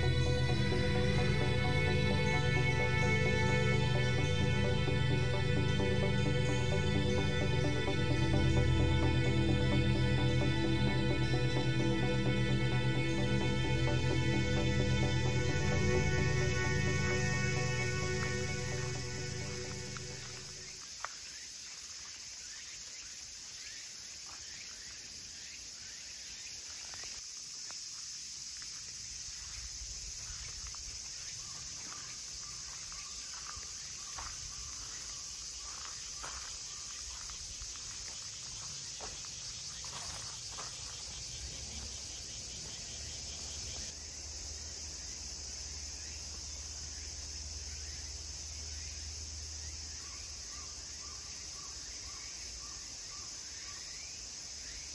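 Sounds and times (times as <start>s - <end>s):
high-pitched insect chorus: 0.0s - 54.9s.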